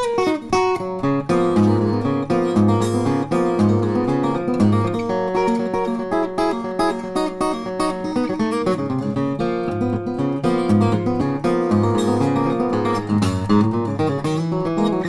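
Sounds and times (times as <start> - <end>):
acoustic guitar plucked and strummed: 0.0 - 15.0.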